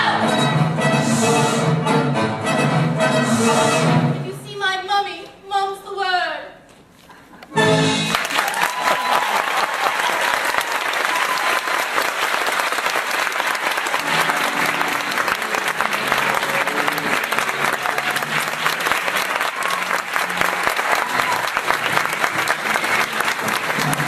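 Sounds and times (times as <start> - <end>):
audience applauding: 8.0 - 24.0.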